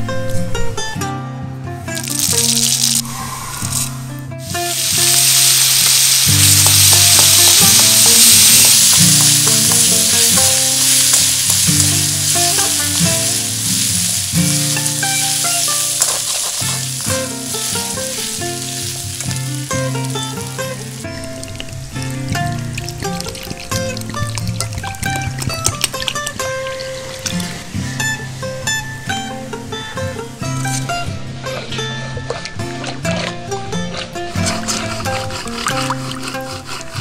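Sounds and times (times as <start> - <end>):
background music: 0.0 - 37.0
spices sizzling in hot oil: 1.9 - 30.9, 34.3 - 37.0
spatula stirring: 4.4 - 21.7, 33.9 - 37.0.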